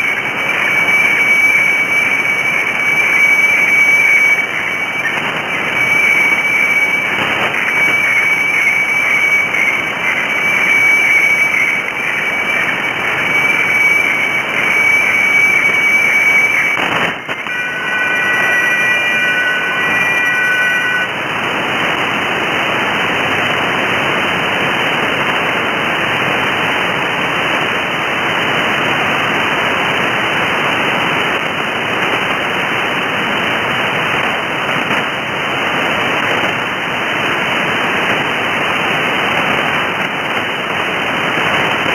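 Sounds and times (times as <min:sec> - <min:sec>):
radio static: 0:00.0 - 0:32.9
cluster of steady tones: 0:00.0 - 0:41.9
steady high radio tone: 0:00.0 - 0:41.9.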